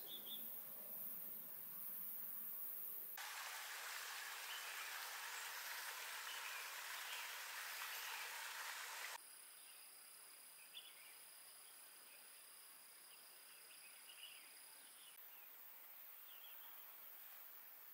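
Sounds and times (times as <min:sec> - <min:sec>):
rush of water: 0:03.2 - 0:09.2.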